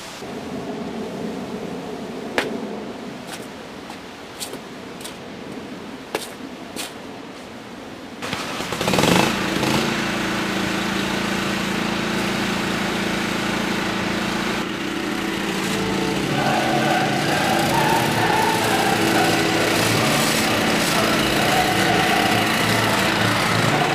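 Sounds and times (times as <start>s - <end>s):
riding lawn mower engine: 8.2s - 23.9s.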